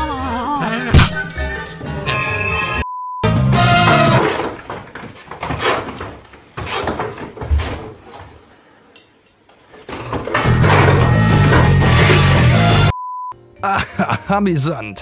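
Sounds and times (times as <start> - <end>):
clattering knocks: 9.8 - 12.4.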